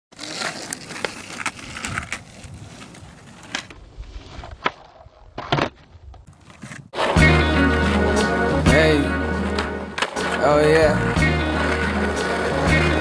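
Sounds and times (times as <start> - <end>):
skateboard popping and landing: 0.1 - 7.3, 9.4 - 10.4
skateboard wheels rolling on asphalt: 0.1 - 13.0.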